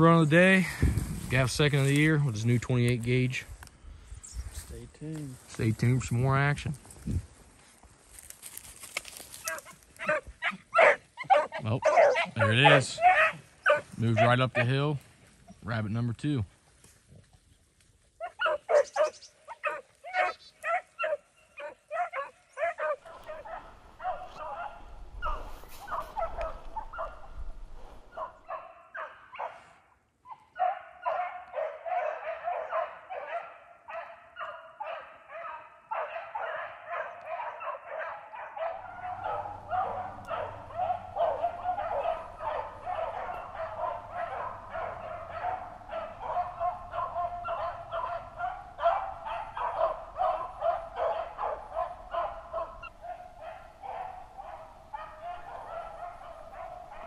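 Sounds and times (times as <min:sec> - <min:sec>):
hounds bawling and yipping: 0:09.1 - 0:14.8, 0:18.1 - 0:57.0.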